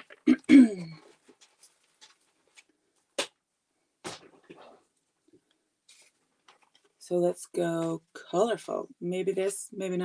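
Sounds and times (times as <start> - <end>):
paper rustling: 1.0 - 3.1, 5.9 - 7.0
paper pages flapping: 5.9 - 7.0.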